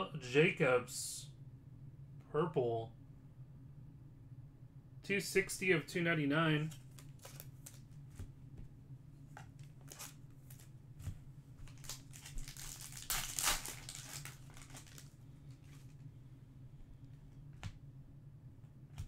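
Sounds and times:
low steady hum: 0:00.0 - 0:19.0
card pack wrapper crinkling: 0:06.7 - 0:08.0, 0:09.4 - 0:10.7, 0:11.6 - 0:16.0.

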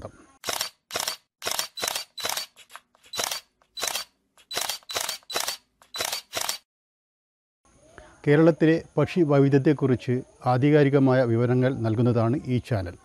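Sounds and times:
camera shutter clicks: 0:00.4 - 0:06.7.

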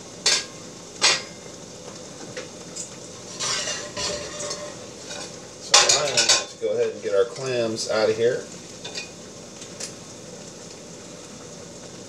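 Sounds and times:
food simmering: 0:06.8 - 0:12.0.

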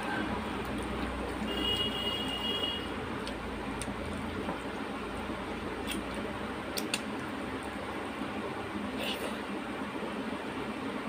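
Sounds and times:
fingers squishing food: 0:03.0 - 0:07.8.

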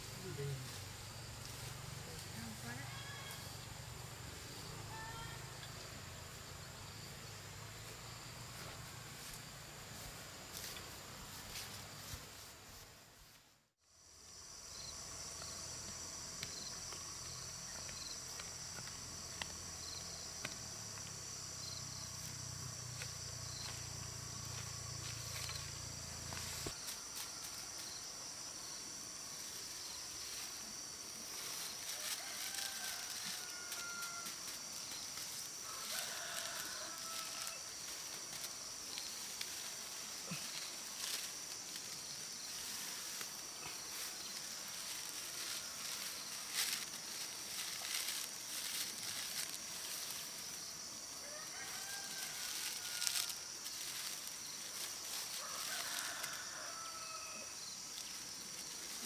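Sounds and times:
crickets trilling: 0:00.0 - 0:13.1, 0:13.8 - 0:59.0
straw rustling: 0:29.5 - 0:57.0.

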